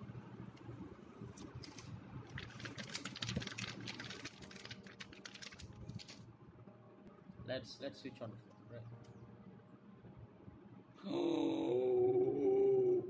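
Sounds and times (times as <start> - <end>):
plastic wrap crinkling: 1.7 - 6.2.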